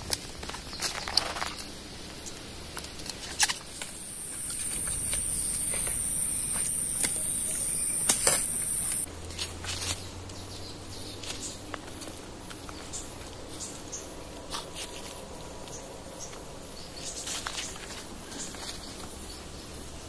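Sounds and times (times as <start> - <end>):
faint clicks and rustles: 0.0 - 19.4
high-pitched insect buzz: 3.9 - 12.2.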